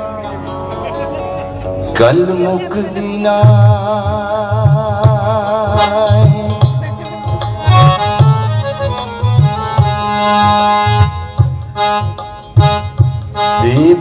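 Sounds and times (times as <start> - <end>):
bass: 0.0 - 14.0
keyboard melody: 0.0 - 14.0
hand drum beat: 3.4 - 8.8.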